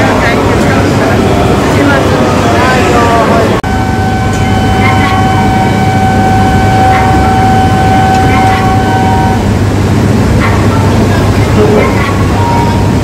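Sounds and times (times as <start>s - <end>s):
faint voices: 0.0s - 3.6s, 10.3s - 13.0s
steady low hum: 3.4s - 13.0s.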